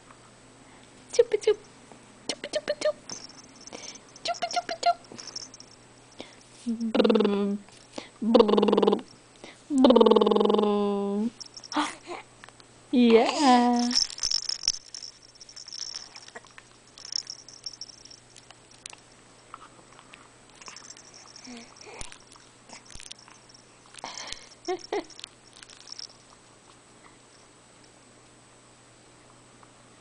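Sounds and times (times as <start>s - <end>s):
infant chewing on toy: 13.8s - 19.0s, 19.6s - 26.4s.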